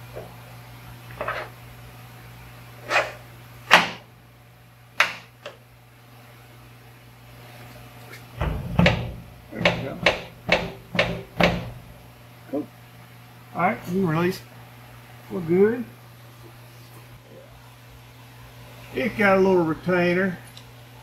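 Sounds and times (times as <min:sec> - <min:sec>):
low hum: 0:08.4 - 0:12.6.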